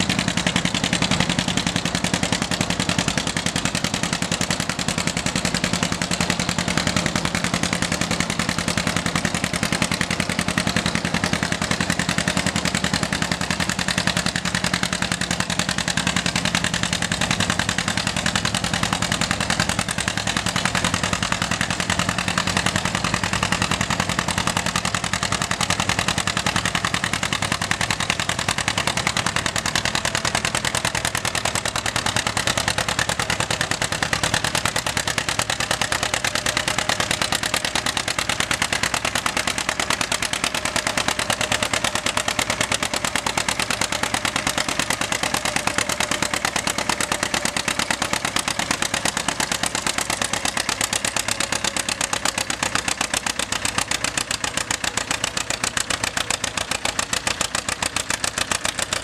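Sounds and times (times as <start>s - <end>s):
rapid exhaust popping: 0.0s - 59.0s
tractor engine running: 0.0s - 59.0s.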